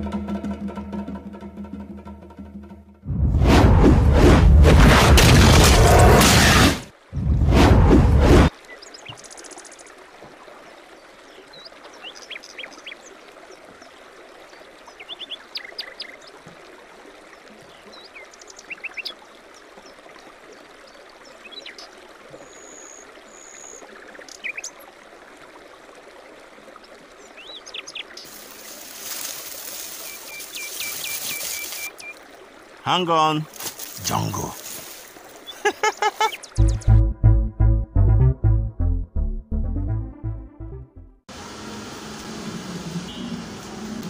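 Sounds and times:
stream trickling: 0:08.5 - 0:36.8
birds chirping: 0:10.7 - 0:13.9, 0:29.6 - 0:32.2, 0:32.8 - 0:37.1
rustling of tall grass: 0:28.2 - 0:32.2, 0:33.5 - 0:36.3.

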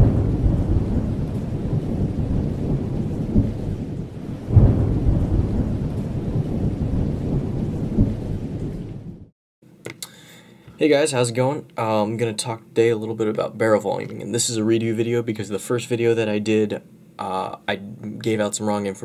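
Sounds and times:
rain hiss: 0:00.0 - 0:07.9
loud thunder boom: 0:00.0 - 0:09.3
thunder rumbling: 0:00.0 - 0:09.3.

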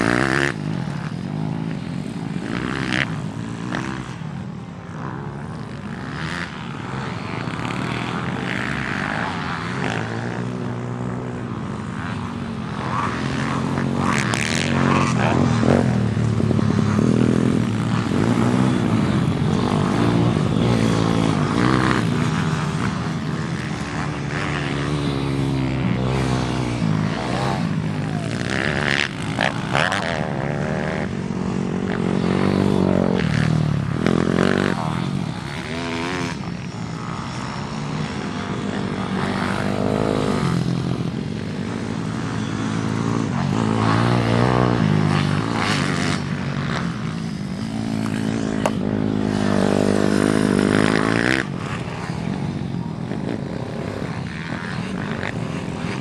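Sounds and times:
motorbike engine revving: 0:00.0 - 0:04.3, 0:04.9 - 0:56.0.

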